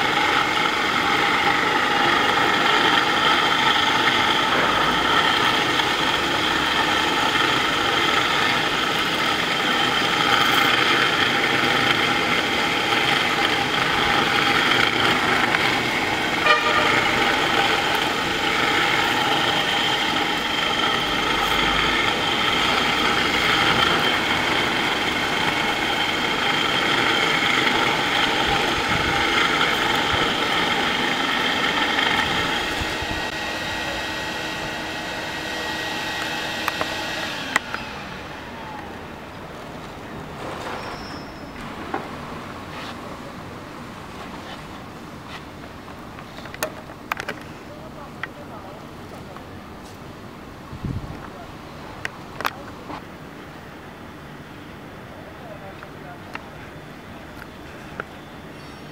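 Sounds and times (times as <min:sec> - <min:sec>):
floor grinder whining: 0:00.0 - 0:43.2
dust extractor drawing air: 0:00.0 - 0:45.6.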